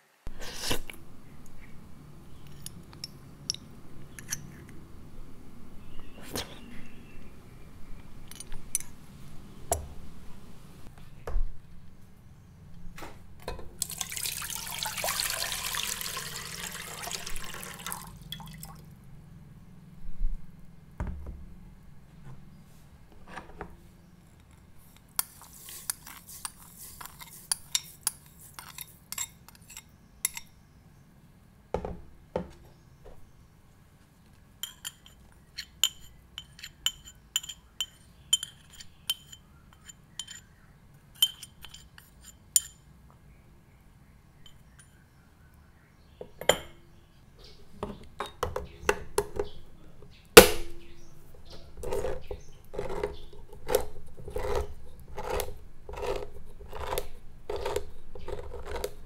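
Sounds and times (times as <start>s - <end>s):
spoon clinking on ceramic ramekin: 34.6s - 40.4s.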